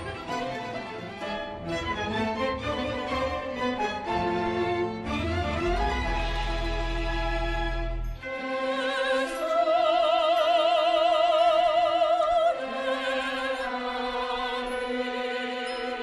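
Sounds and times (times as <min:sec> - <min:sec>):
orchestral music: 0:00.0 - 0:16.0
operatic voice singing: 0:06.0 - 0:16.0.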